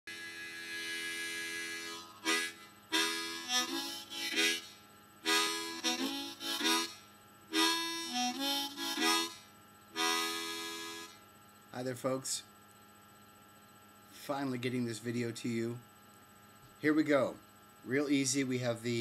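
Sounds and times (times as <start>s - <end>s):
harmonica chugging rhythm: 0.1s - 11.2s.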